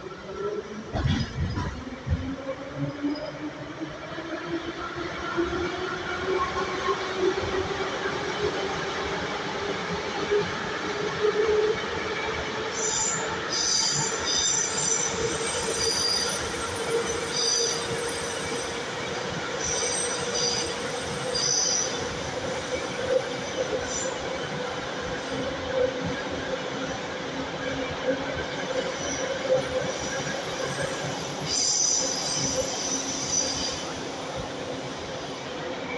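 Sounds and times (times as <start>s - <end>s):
train wheels rumbling on rail: 0.0s - 35.9s.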